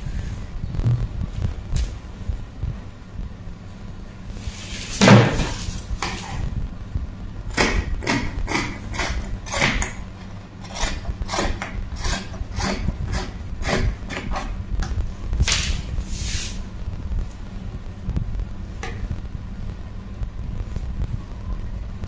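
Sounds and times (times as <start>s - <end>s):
shears snipping fabric: 10.6s - 14.6s.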